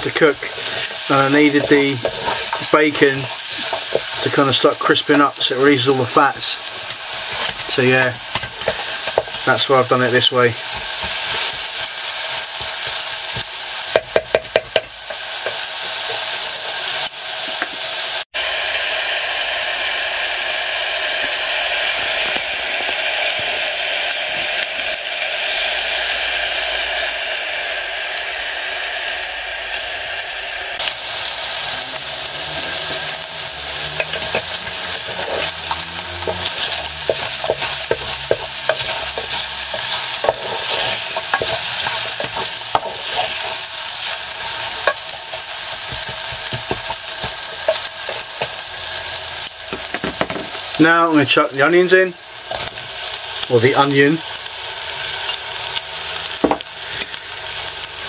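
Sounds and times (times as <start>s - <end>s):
wooden spoon stirring and scraping: 0.0s - 17.6s, 31.0s - 50.6s
bacon and carrots sizzling: 0.0s - 58.0s
spoon tapping on pan: 13.9s - 15.6s.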